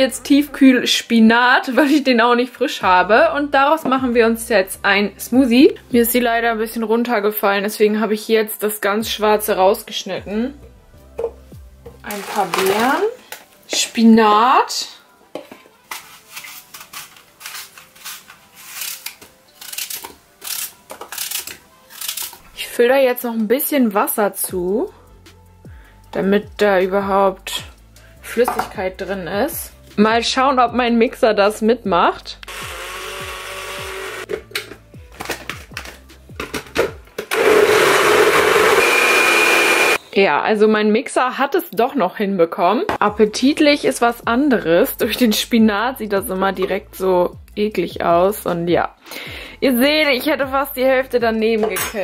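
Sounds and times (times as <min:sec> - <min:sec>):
blender motor whirring: 0:32.5 - 0:34.3, 0:37.3 - 0:40.0.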